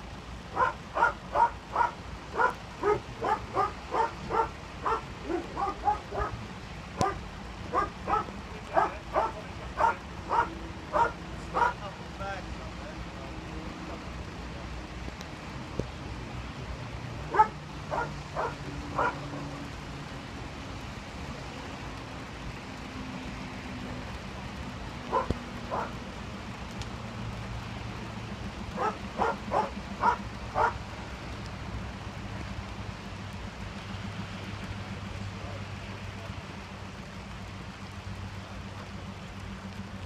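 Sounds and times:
dog barking: 0.5s - 6.4s, 7.0s - 11.8s, 17.3s - 19.2s, 25.1s - 26.0s, 28.8s - 30.8s.

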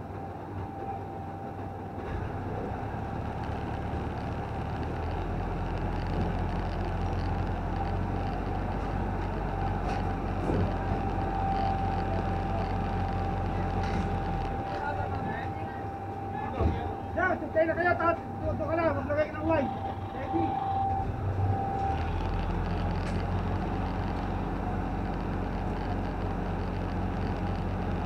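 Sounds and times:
truck engine droning: 0.0s - 28.0s.

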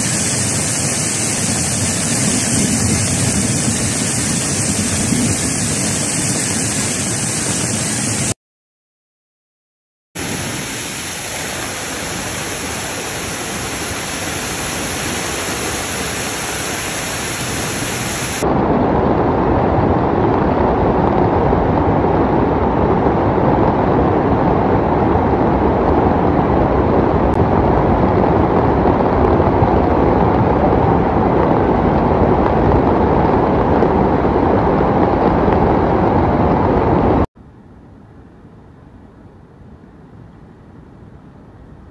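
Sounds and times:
floodwater rushing: 0.0s - 8.4s, 10.2s - 18.4s.

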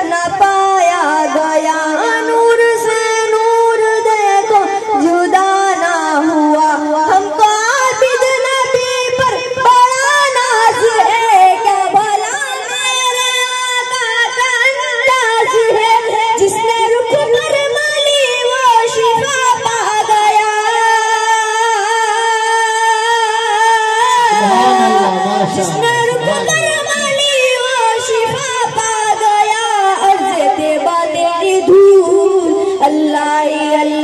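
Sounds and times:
lower voice singing: 24.2s - 28.8s
person singing long notes: 24.3s - 27.6s.

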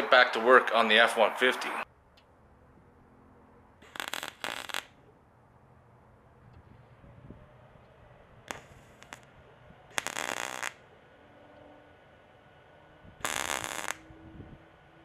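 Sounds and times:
welding arc crackle: 3.8s - 5.0s, 8.5s - 9.3s, 9.9s - 10.8s, 13.2s - 14.1s.

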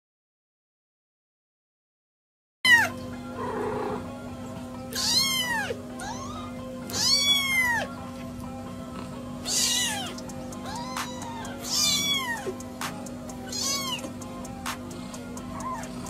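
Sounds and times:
kitten meowing: 2.7s - 3.0s, 4.9s - 7.9s, 9.4s - 12.6s, 13.4s - 14.1s, 15.6s - 16.0s
steady low hum: 3.0s - 16.0s.

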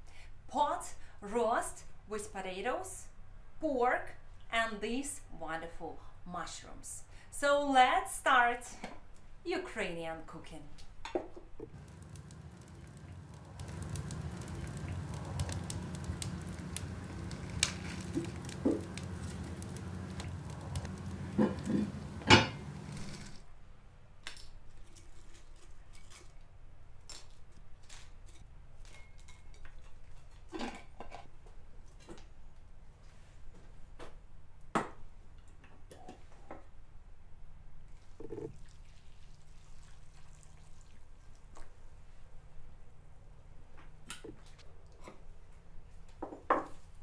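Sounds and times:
steady low hum: 11.8s - 23.4s.

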